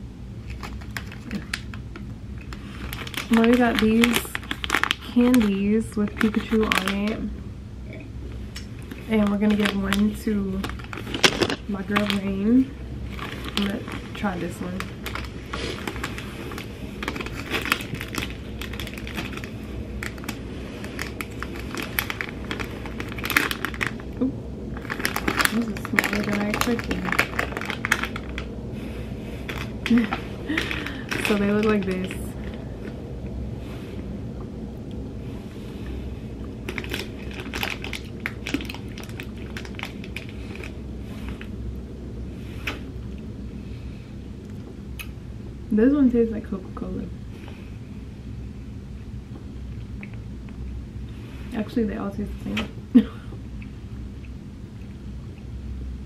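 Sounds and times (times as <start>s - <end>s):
candy wrapper crinkling: 0.4s - 7.3s, 8.6s - 33.0s, 36.4s - 41.5s.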